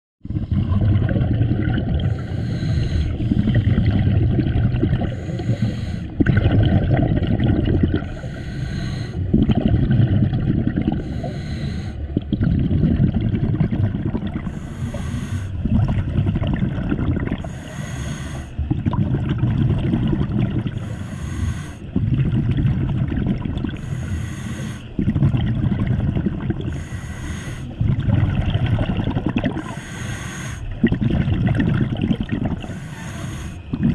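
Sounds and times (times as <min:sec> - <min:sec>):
exhaled bubbles rumbling: 0:00.2 - 0:33.9
regulator breath hiss: 0:05.1 - 0:06.2, 0:08.0 - 0:09.2, 0:11.0 - 0:12.0, 0:14.5 - 0:15.6, 0:17.5 - 0:18.6, 0:20.8 - 0:21.9, 0:23.8 - 0:24.9, 0:26.7 - 0:27.8, 0:29.6 - 0:30.7, 0:32.7 - 0:33.7.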